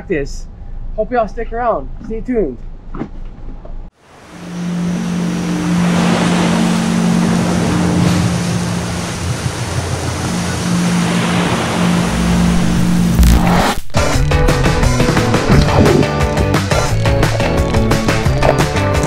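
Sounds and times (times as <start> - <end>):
ocean waves washing in surf: 4.0 - 13.8.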